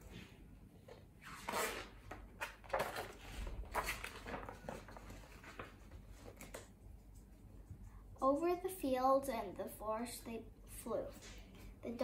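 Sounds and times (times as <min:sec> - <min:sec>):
paper pages turning: 0:01.5 - 0:06.7.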